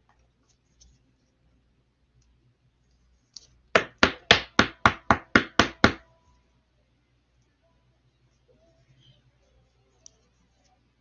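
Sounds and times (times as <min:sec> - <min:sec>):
rapid sharp knocks: 0:03.8 - 0:06.0.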